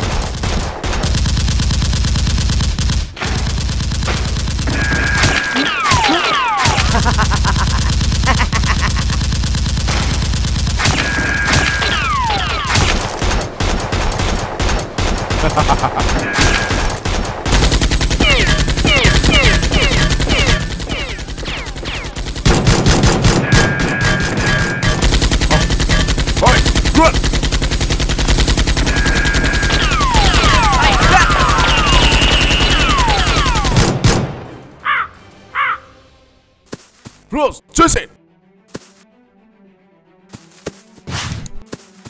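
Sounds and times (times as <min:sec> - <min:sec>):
automatic gunfire: 0:07.7 - 0:34.4
falling whistles of shots: 0:28.8 - 0:33.9.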